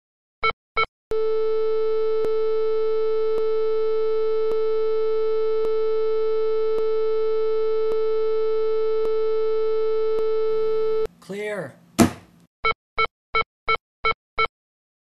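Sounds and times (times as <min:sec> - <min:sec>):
heart monitor flatline tone: 0:01.2 - 0:11.1.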